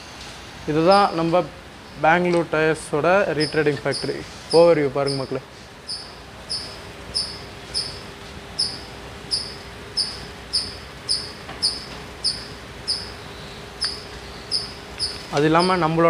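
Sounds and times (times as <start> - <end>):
faint steady hum: 0.0 - 16.0
cricket chirping: 3.4 - 15.7.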